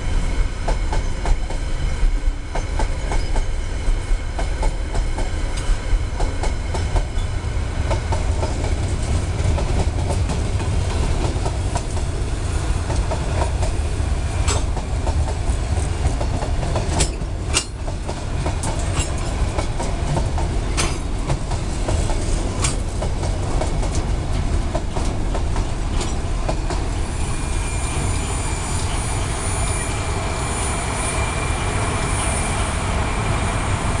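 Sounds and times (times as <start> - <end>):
freight train rumbling past: 0.0 - 34.0
wheel clacks over rail joints: 14.4 - 26.9
high thin wheel squeal: 27.0 - 33.1.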